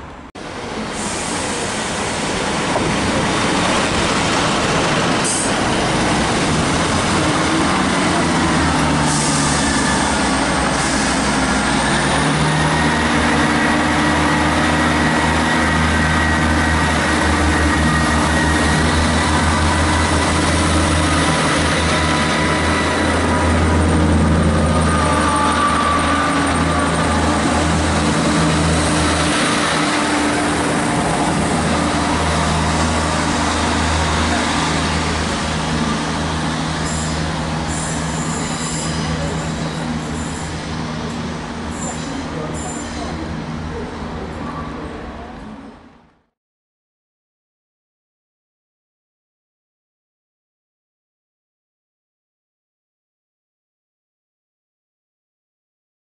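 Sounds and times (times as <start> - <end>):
diesel train engines humming: 0.0 - 46.0.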